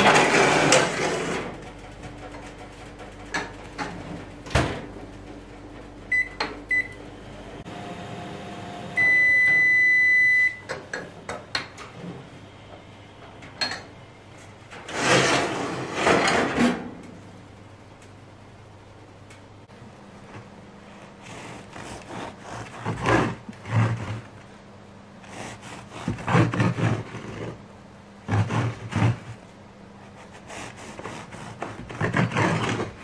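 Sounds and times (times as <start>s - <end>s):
metal tray scraping and clattering: 0.0s - 4.3s, 14.8s - 17.0s
oven control panel beeps: 6.1s - 7.0s, 9.0s - 10.8s
long beep: 9.0s - 10.7s.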